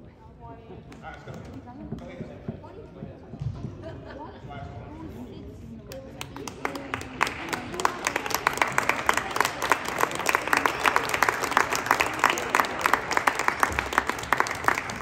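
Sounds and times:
spectators applauding: 6.0 - 15.0.

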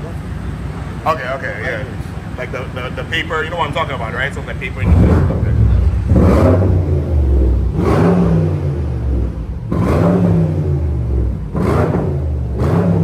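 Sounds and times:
car engine idling: 0.0 - 13.0
car engine revving: 3.0 - 13.0.

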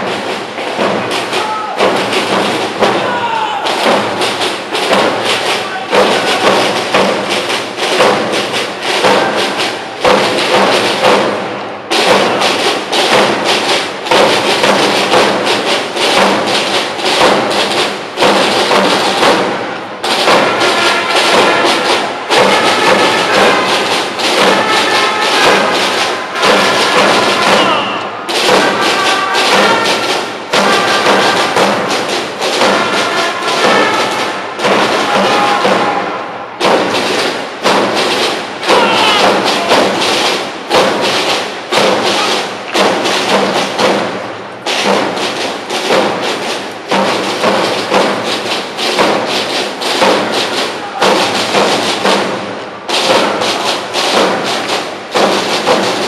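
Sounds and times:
brass tune: 0.0 - 56.0
drums beating: 0.0 - 56.0
marching band playing: 0.0 - 56.0.

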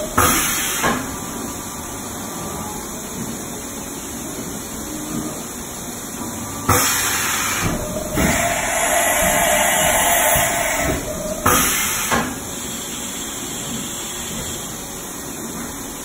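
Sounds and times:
machining center whirring: 0.0 - 16.0.

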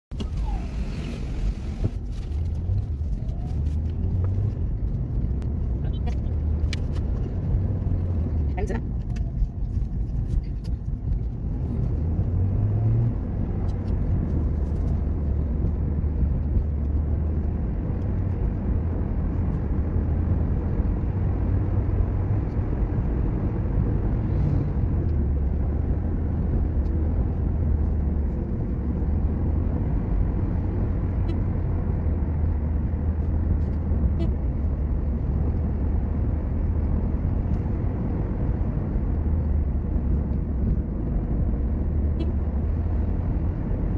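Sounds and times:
car cabin road and engine rumble: 0.0 - 43.9.

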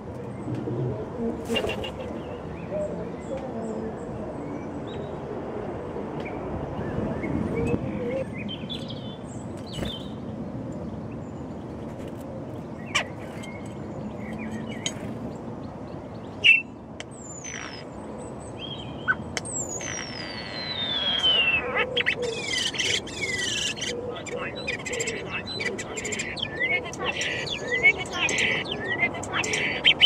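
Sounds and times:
bird calls: 12.7 - 17.9, 18.5 - 30.0
starling singing: 18.6 - 30.0.

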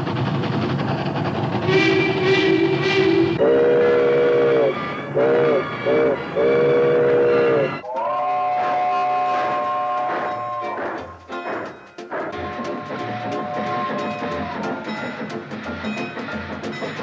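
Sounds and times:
steam locomotive running: 0.0 - 7.9, 8.7 - 17.0
chime whistle blowing: 1.7 - 7.8.

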